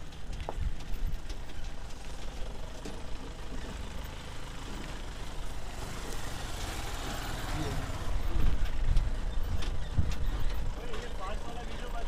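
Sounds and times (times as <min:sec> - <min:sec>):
bicycle rattling on dirt track: 0:00.0 - 0:12.0
jeep engine rumbling: 0:00.0 - 0:12.0.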